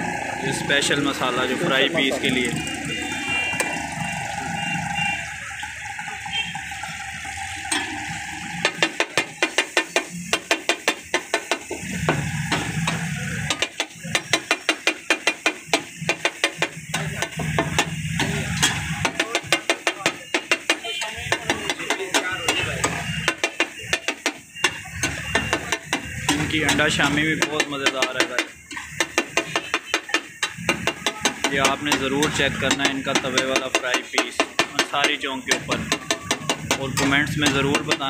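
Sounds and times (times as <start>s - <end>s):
masala sizzling on a griddle: 0.0s - 38.0s
steel spatula clattering on griddle: 7.6s - 38.0s.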